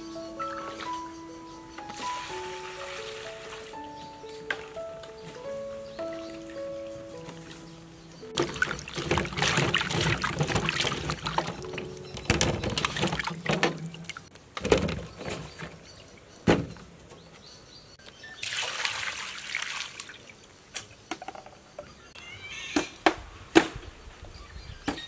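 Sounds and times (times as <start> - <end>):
water pouring and splashing: 1.8 - 5.5, 6.1 - 16.7, 18.4 - 20.4
hands sloshing fruit in water: 8.4 - 15.9.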